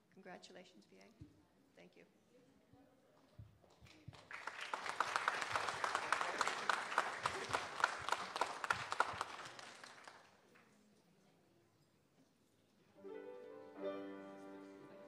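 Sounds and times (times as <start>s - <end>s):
congregation applauding: 4.1s - 10.5s.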